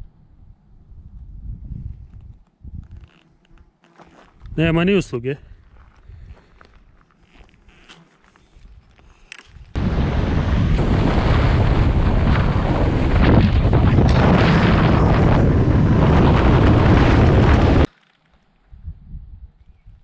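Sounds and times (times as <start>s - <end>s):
wind rushing over microphone: 0.0s - 3.0s, 9.5s - 17.9s, 18.7s - 20.0s.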